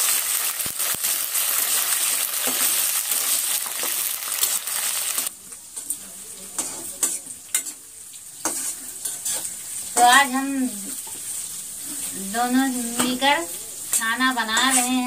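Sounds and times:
vegetables sizzling in hot oil: 0:00.0 - 0:15.0
spatula scraping a metal pan: 0:08.4 - 0:10.1, 0:13.9 - 0:15.0.

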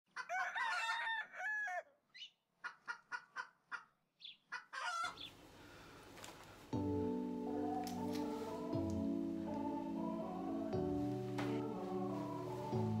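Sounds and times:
rooster crowing: 0:00.1 - 0:01.9
chicken clucking: 0:02.2 - 0:05.3
faint room hiss: 0:05.2 - 0:13.0
music: 0:06.8 - 0:13.0.

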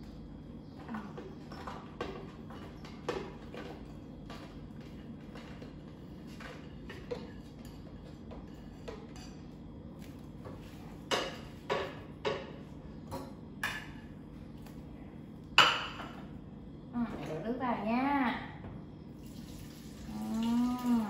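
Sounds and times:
steady low hum: 0:00.0 - 0:21.0
dishes clinking on countertop: 0:01.2 - 0:09.6, 0:10.4 - 0:14.1, 0:15.6 - 0:16.3.

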